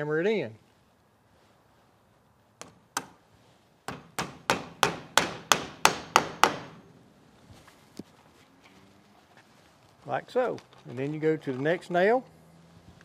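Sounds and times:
hammer driving a nail: 0:03.9 - 0:06.8.

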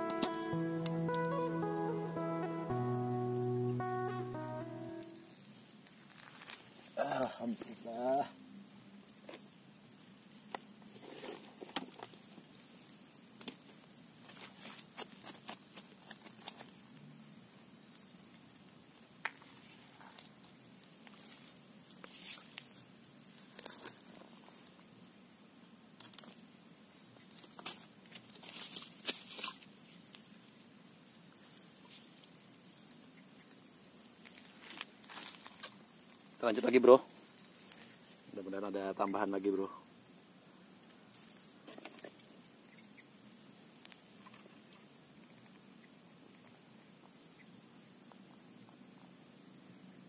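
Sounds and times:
faint high-pitched tone: 0:00.0 - 0:05.5
faint outdoor background: 0:00.0 - 0:50.0.

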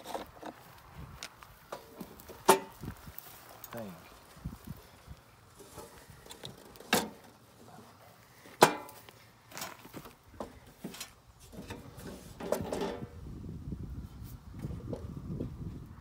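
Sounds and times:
light knocks and scrapes: 0:05.6 - 0:13.1.

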